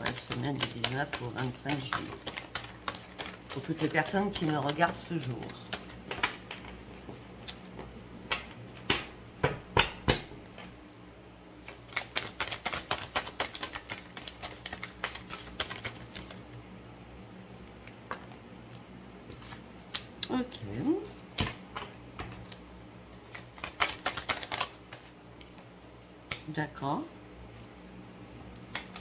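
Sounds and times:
cards riffling: 0.0 - 9.1, 11.6 - 16.6, 21.3 - 26.5, 28.5 - 29.0
card deck slaps and taps: 0.0 - 10.7, 23.3 - 25.6, 26.3 - 26.5, 28.5 - 29.0.

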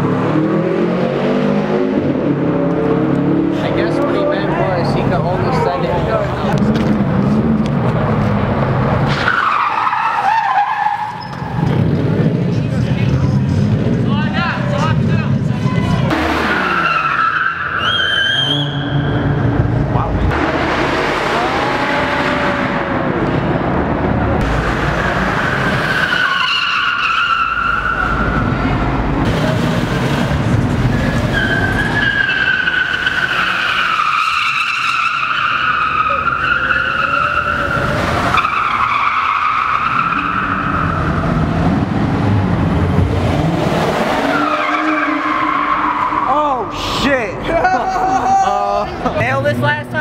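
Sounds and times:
engine at high revs: 0.0 - 9.0, 14.8 - 17.0, 19.2 - 26.2, 39.6 - 46.1
tyres squealing: 15.7 - 19.2, 25.4 - 28.6, 31.0 - 41.4, 44.2 - 47.1.

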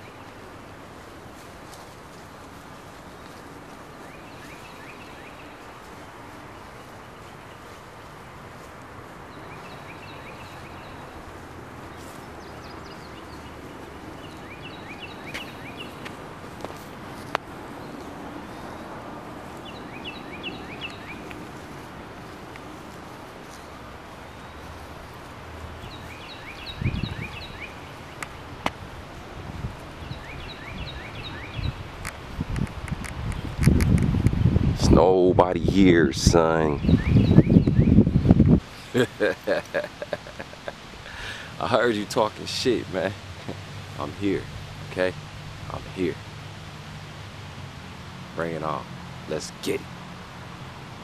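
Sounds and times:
small birds chirping: 0.0 - 34.5, 35.8 - 51.0
sharp clicks: 32.0 - 34.4.

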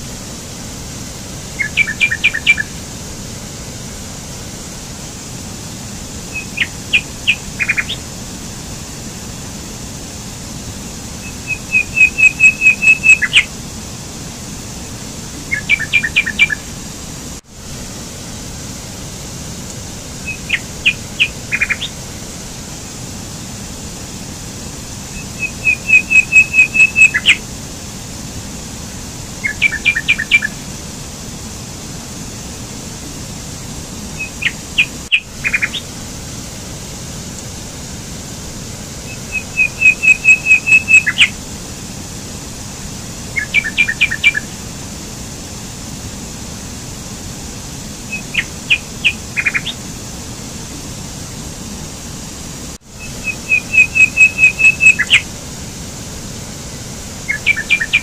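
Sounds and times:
stream rushing over rocks: 0.0 - 58.0
songbird chirping and trilling: 1.6 - 2.7, 6.3 - 8.0, 11.2 - 13.5, 15.4 - 16.6, 20.2 - 22.0, 25.1 - 27.4, 29.4 - 30.6, 34.2 - 35.9, 39.1 - 41.4, 43.4 - 44.5, 48.1 - 49.8, 53.0 - 55.3, 57.3 - 58.0.

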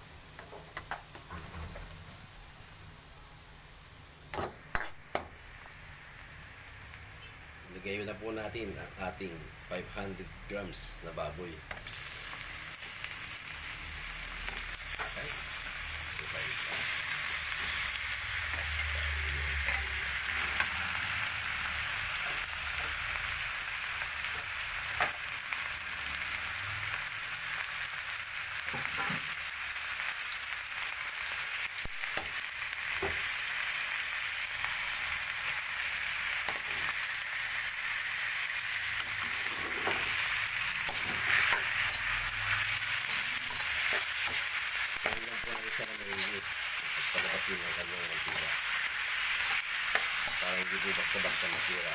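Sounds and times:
meat sizzling in oil: 0.0 - 51.9
metal spatula scraping wok: 39.0 - 51.8.

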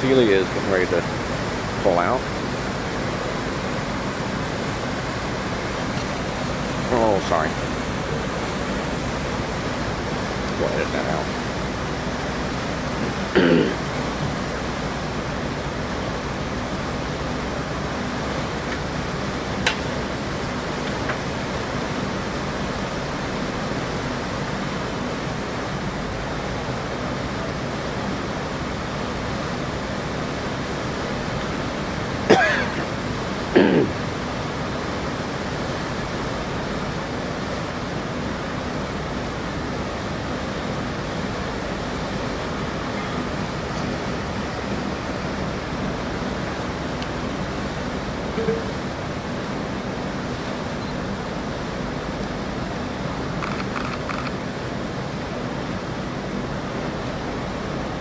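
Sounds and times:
water rushing from propellers: 0.0 - 58.0.

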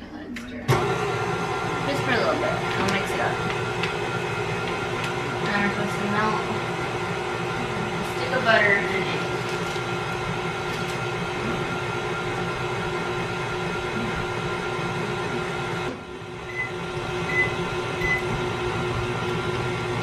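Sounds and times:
stand mixer running: 0.7 - 20.0
microwave keypad beeps: 16.5 - 18.3.

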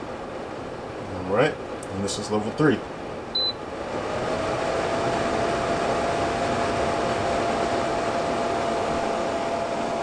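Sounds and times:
air purifier fan running: 0.0 - 10.0.

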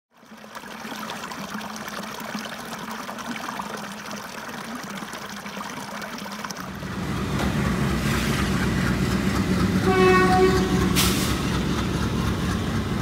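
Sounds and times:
water trickling over rocks: 0.1 - 6.9.

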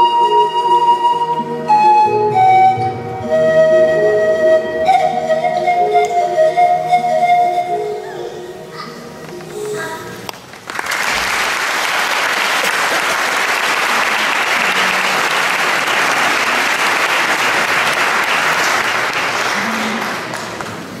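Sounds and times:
music: 0.0 - 10.4
audience applauding: 10.3 - 21.0.

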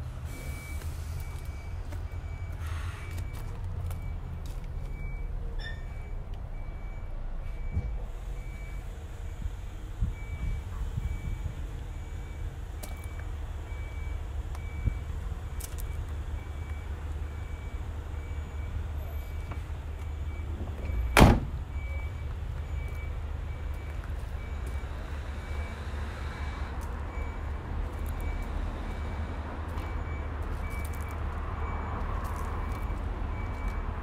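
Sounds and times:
faint repeating beep: 0.4 - 9.4, 15.8 - 25.8
car door thudding shut: 21.2 - 21.6.

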